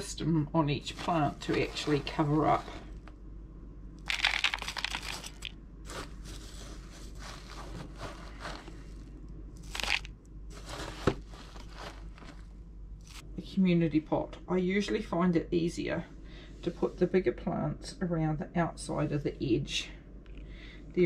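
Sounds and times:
spoon scooping potting mix: 4.1 - 9.0, 9.6 - 11.0, 13.0 - 13.2.

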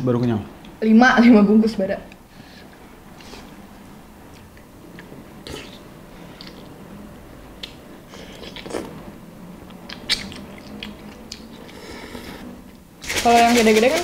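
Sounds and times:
chewing with wet mouth clicks: 9.6 - 11.8
people slurping noodles: 11.6 - 12.6.

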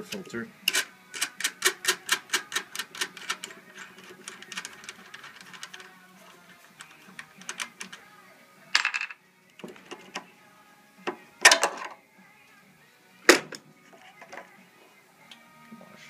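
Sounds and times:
wing nut metallic clicks: 0.7 - 8.1
cover and housing clattering: 11.1 - 12.0.

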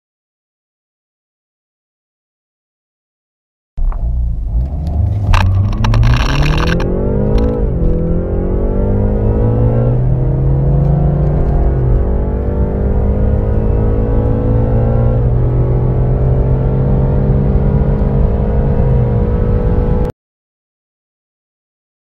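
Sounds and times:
car engine at full throttle: 3.8 - 20.1
rushing noise: 4.0 - 7.9.

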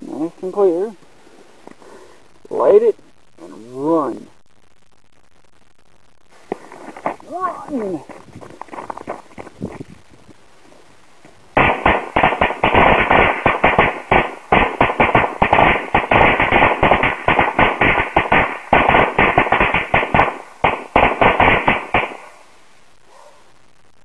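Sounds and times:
firecrackers banging: 11.6 - 22.4.

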